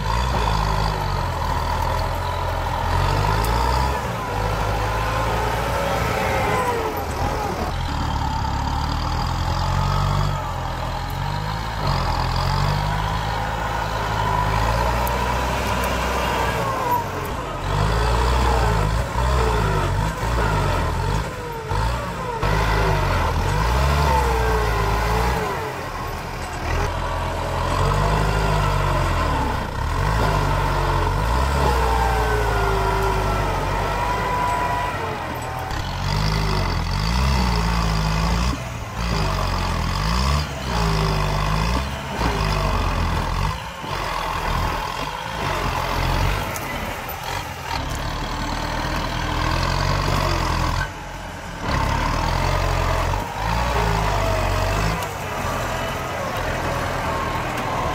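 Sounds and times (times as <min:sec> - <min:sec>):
tractor diesel engine under load: 0:00.0 - 0:57.9.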